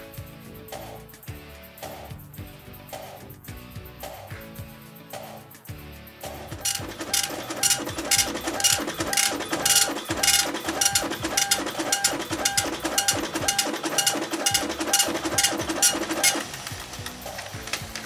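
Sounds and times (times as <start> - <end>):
dot-matrix printer print head buzzing: 6.6 - 17.4.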